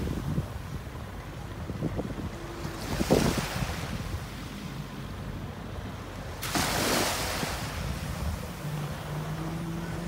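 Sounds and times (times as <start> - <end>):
wind buffeting microphone: 0.0 - 4.5
distant jet ski engine: 0.7 - 10.0
small waves lapping: 2.4 - 10.0
wash of surf: 2.5 - 4.9, 6.1 - 10.0.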